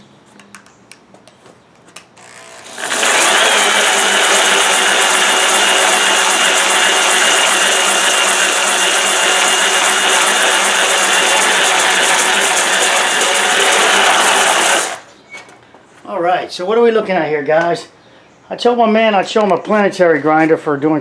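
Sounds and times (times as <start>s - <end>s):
concrete polisher grinding: 2.2s - 15.1s.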